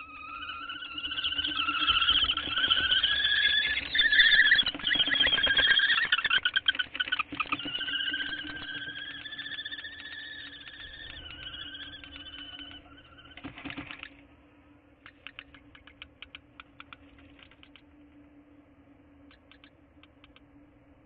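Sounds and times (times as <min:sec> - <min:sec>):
kestrels calling: 0:00.0 - 0:14.2, 0:15.0 - 0:17.0
wing flutters: 0:00.0 - 0:14.3, 0:15.0 - 0:17.9.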